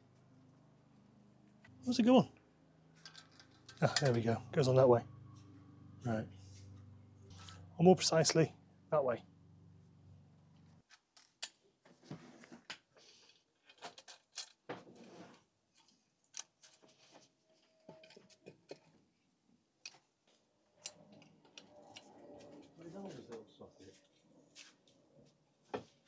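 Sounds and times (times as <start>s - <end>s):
metal parts clicking and knocking: 3.0s - 4.3s, 13.6s - 14.7s.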